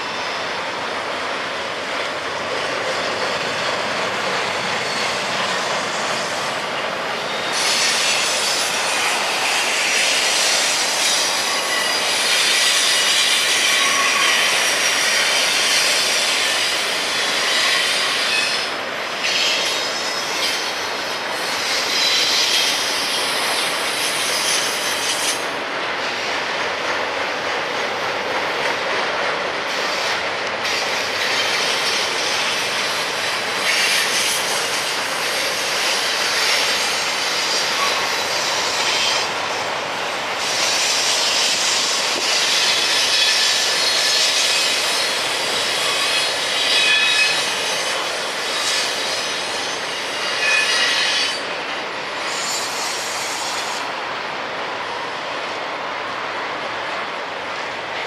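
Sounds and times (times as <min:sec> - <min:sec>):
freight train rumbling past: 0:00.0 - 0:58.0
high wheel screech: 0:07.2 - 0:25.4, 0:29.9 - 0:39.6, 0:40.4 - 0:51.4, 0:52.2 - 0:53.9.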